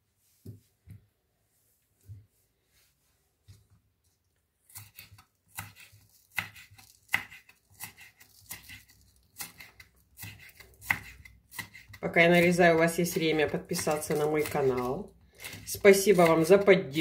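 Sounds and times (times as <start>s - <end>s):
knife cutting on wooden board: 4.7s - 16.6s.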